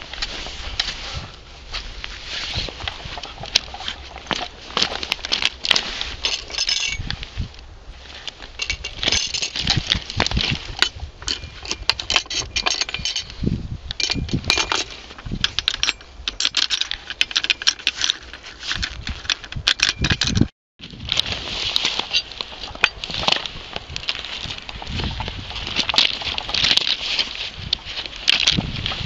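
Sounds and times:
loose screw rattling on metal: 10.8 - 20.5.

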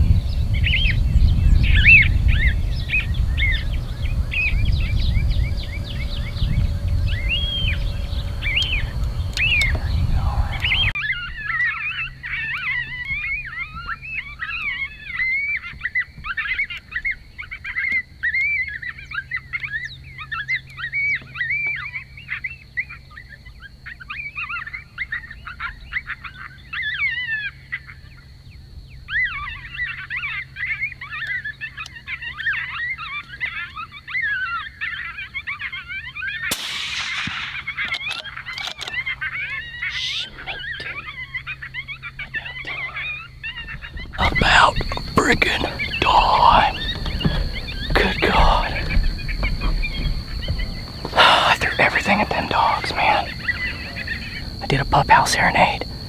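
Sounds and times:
coyote pup yips and squeals: 10.6 - 28.2, 29.1 - 50.7
suppressed rifle shot: 36.5 - 38.2.

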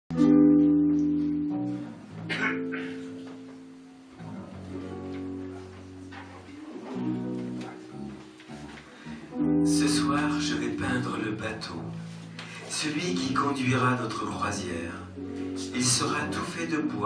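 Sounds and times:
ringing guitar chords: 0.1 - 11.1, 15.0 - 16.3
bass line: 0.1 - 12.3.

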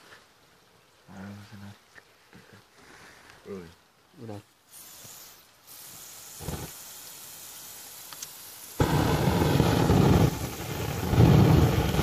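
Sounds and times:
firework fountain rushing: 4.7 - 12.0.

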